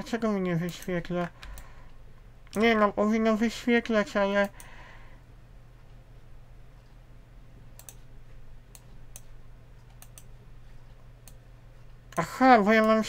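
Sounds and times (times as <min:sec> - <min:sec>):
faint low hum: 0:00.0 - 0:13.0
mouse buttons clicking: 0:07.8 - 0:08.1.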